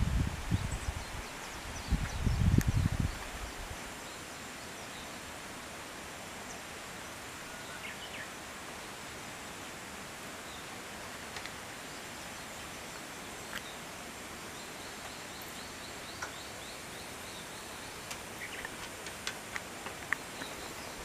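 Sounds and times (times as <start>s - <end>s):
faint outdoor hiss: 0.0s - 21.0s
small bird chirping: 14.5s - 19.0s, 20.1s - 21.0s.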